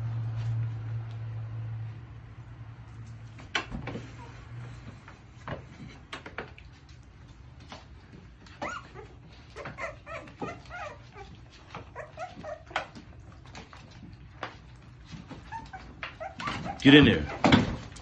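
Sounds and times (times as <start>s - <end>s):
knocks and rustles in plastic pool: 2.9s - 18.0s
puppies whimpering: 8.3s - 18.0s.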